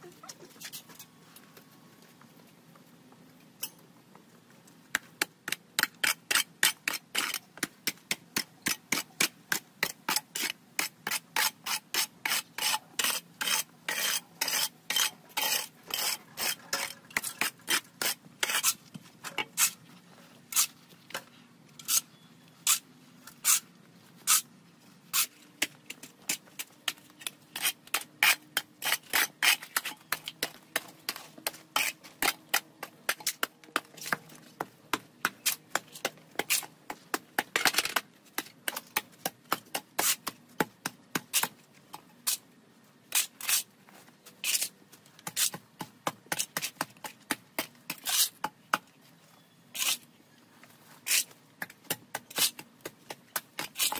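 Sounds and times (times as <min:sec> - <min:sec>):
metal hoe scraping soil on concrete: 0:05.8 - 0:07.5, 0:08.4 - 0:34.6, 0:35.2 - 0:36.8, 0:40.0 - 0:40.3, 0:43.1 - 0:45.6, 0:46.3 - 0:48.4, 0:49.4 - 0:50.1, 0:50.8 - 0:51.4, 0:52.1 - 0:53.9.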